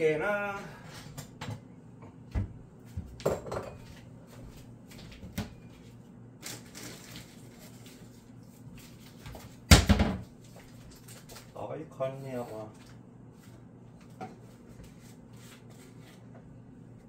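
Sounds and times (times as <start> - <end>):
dishes and utensils clinking: 3.2 - 4.0.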